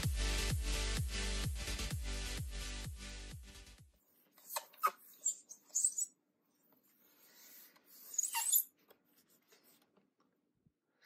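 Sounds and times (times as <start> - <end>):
skin squeaking on plastic: 4.4 - 6.2, 6.8 - 9.8.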